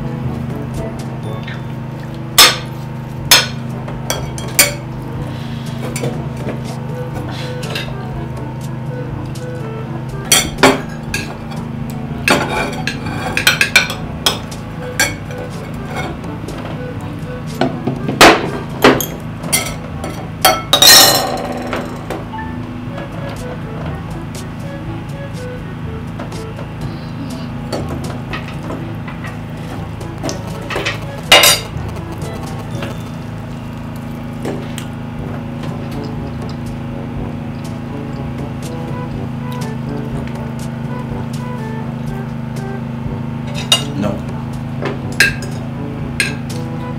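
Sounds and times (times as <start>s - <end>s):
soft background music: 0.0s - 46.9s
cutlery clinking on plates: 12.3s - 14.4s, 18.2s - 22.0s, 46.2s - 46.4s.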